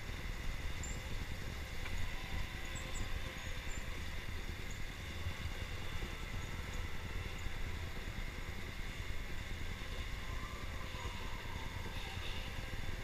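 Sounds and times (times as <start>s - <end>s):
faint high motor whine: 0.0s - 13.0s.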